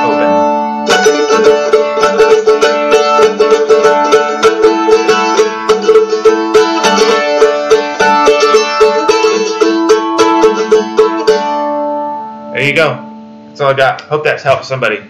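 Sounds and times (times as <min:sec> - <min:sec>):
mandolin picked quickly: 0:00.0 - 0:13.1.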